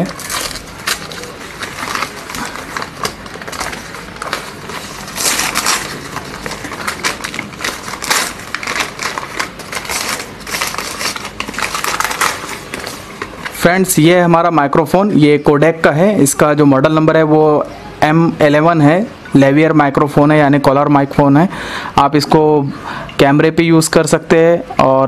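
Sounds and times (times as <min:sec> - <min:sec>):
packaging tearing and crinkling: 0:00.0 - 0:13.6.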